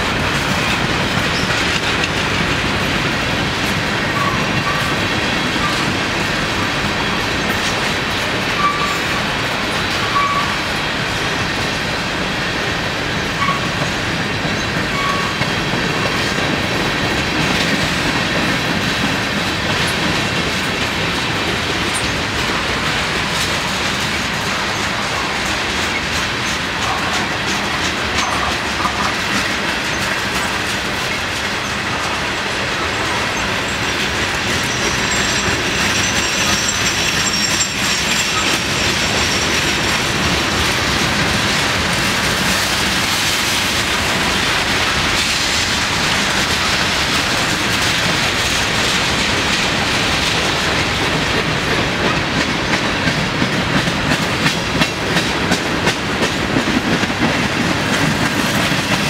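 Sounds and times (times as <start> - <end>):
freight train wheels clickety-clack: 0.0 - 59.0
faint high wheel squeal: 8.6 - 9.2, 10.1 - 10.6, 14.6 - 15.4, 33.4 - 40.1.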